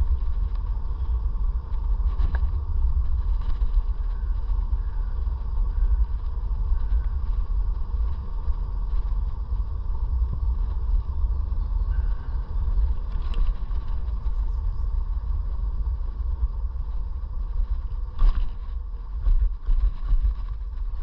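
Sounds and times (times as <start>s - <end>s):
electric scooter whine: 0.0s - 21.0s
wind and road noise rumble: 0.0s - 21.0s.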